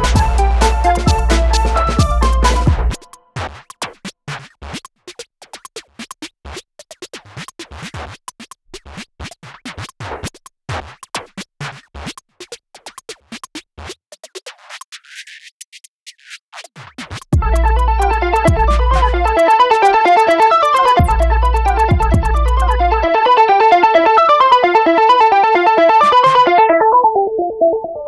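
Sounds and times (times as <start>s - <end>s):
electronic music with heavy bass: 0.0s - 3.1s, 17.4s - 27.2s.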